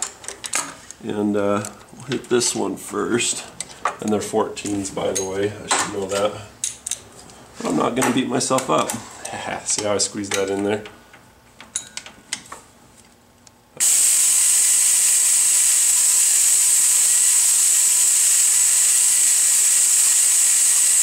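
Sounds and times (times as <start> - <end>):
air ratchet hissing whir: 13.8 - 21.0.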